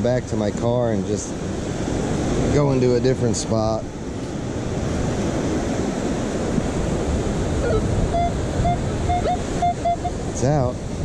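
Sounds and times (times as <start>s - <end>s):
ocean surf: 0.0s - 11.0s
wind on microphone: 0.0s - 11.0s
metal detector beeps: 7.6s - 10.3s.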